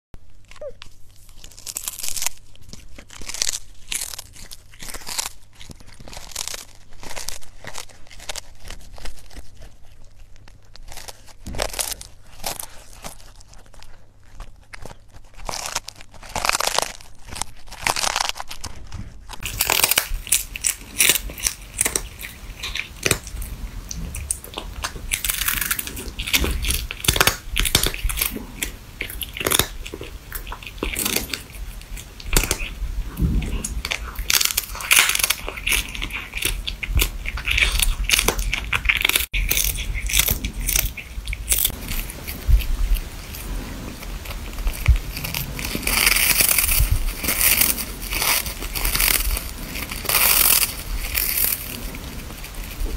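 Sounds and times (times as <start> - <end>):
cats crunching fish: 0.2 - 52.9.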